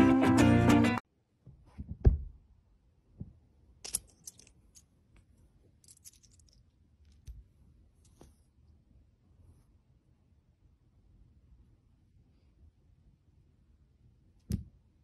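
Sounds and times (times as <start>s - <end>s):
soft thump: 1.7s - 2.4s.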